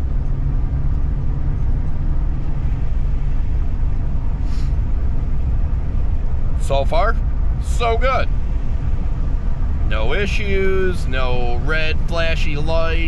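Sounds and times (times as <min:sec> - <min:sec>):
truck engine and road noise: 0:00.0 - 0:13.0.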